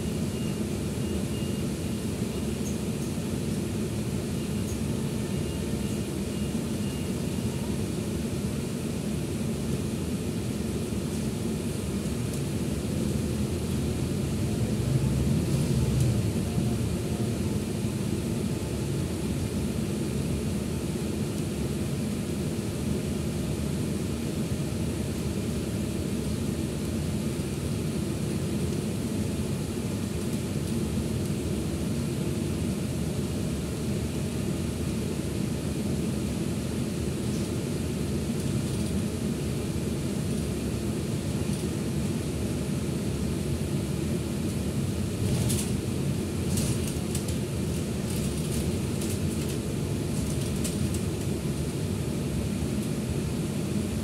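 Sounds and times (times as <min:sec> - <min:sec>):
bus engine drone: 0:00.0 - 0:54.0
road noise: 0:13.3 - 0:18.3.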